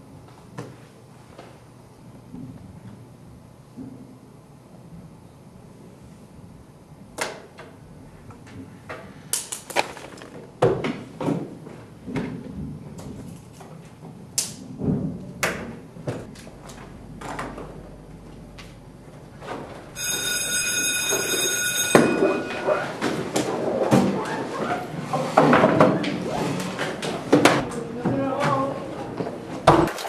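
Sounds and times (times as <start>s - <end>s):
electric bell ringing: 20.0s - 23.5s.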